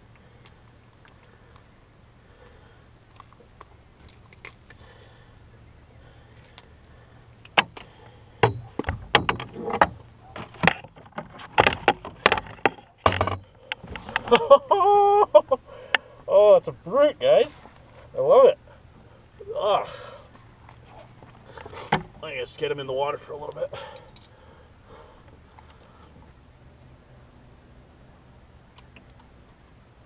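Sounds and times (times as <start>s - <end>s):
pliers rattling against hooks: 1.0s - 2.0s, 3.0s - 5.2s, 6.2s - 8.0s.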